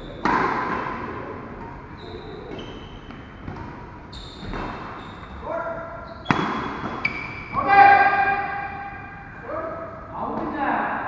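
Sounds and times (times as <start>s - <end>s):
shoes squeaking on court: 0.0s - 7.6s
racket hitting shuttlecock: 0.1s - 5.0s, 6.2s - 7.4s.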